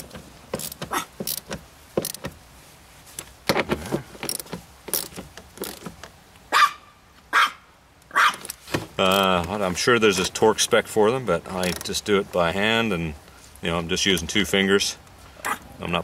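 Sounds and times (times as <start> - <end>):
small metal clicks and knocks: 0.0 - 2.3, 3.2 - 6.2, 11.6 - 11.9.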